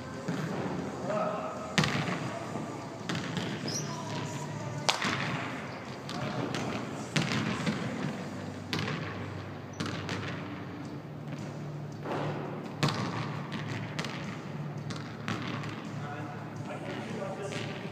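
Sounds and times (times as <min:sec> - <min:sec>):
basketball bouncing on wooden floor: 0:12.8 - 0:15.8.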